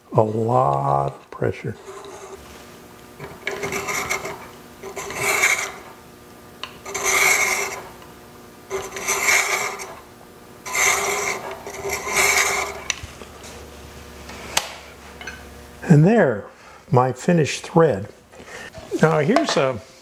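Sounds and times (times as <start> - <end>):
thread chaser scraping wood: 0.2 - 6.0, 6.6 - 8.1, 8.7 - 13.7.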